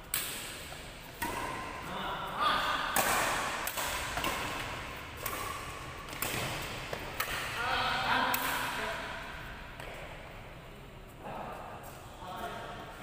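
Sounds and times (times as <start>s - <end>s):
sports hall noise: 0.0s - 13.0s
badminton racket hitting shuttlecock: 0.1s - 8.9s.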